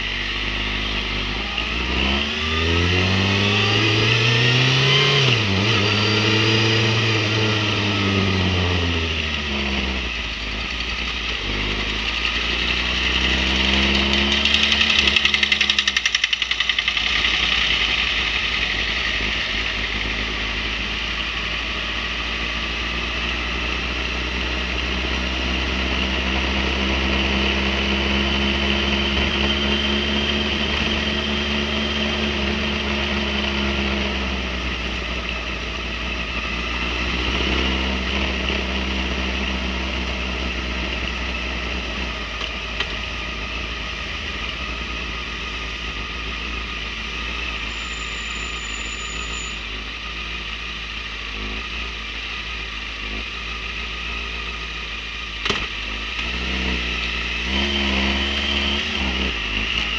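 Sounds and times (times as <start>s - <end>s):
motorcycle engine revving: 0.0s - 59.9s
road and wind noise: 0.0s - 59.9s.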